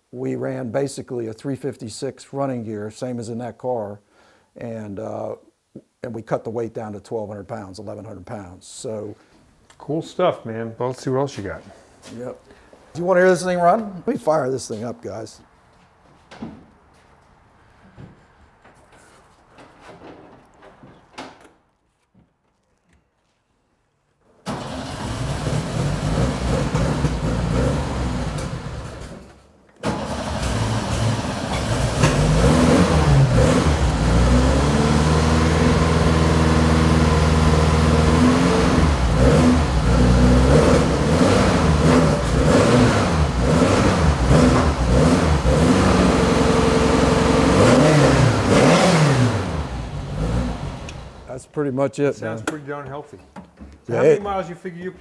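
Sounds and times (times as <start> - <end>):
race car engine revving: 24.5 - 29.1, 29.8 - 51.3.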